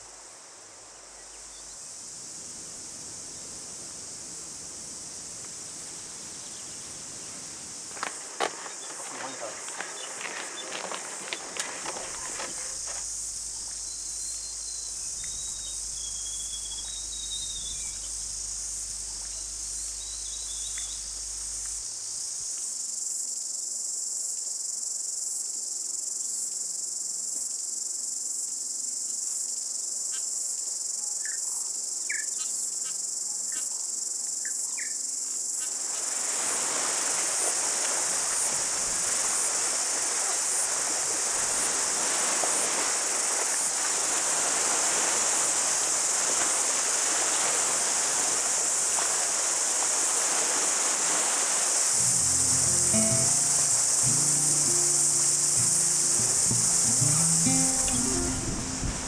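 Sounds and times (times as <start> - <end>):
shrill insect chorus: 0.0 - 59.0
faint bird chirps: 13.6 - 18.3, 19.0 - 21.2.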